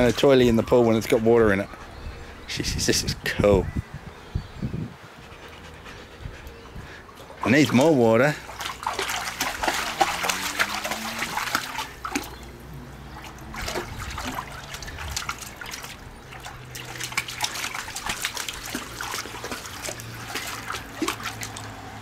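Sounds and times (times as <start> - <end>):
dog paws splashing water: 6.8 - 22.0.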